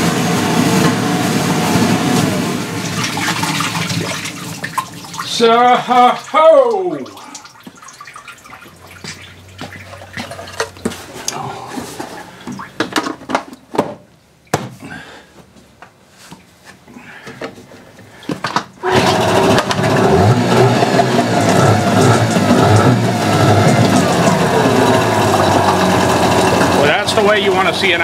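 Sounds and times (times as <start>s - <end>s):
outboard motor revving: 18.8s - 28.0s.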